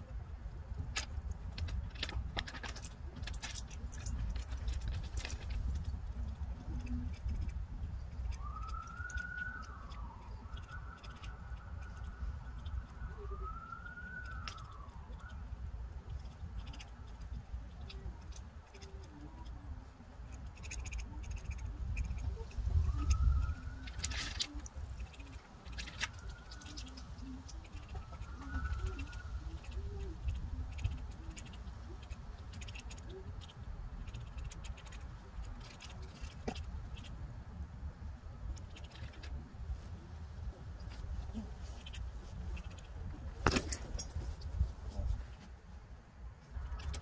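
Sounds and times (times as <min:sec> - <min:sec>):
low traffic rumble: 0:00.0 - 0:47.0
distant siren wailing: 0:06.8 - 0:16.3, 0:21.6 - 0:30.3.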